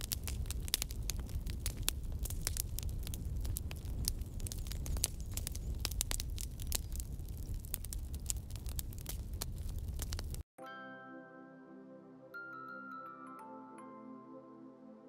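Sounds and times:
static crackling: 0.0s - 10.4s.

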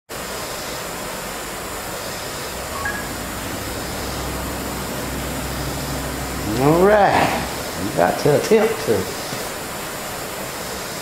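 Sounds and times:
torch flame hissing: 0.4s - 11.0s
low hum: 2.2s - 8.3s.

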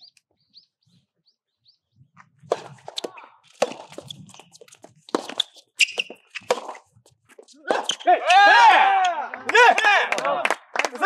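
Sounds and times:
shoes squeaking on hard court: 2.2s - 8.2s
rackets hitting tennis ball: 2.4s - 9.1s.

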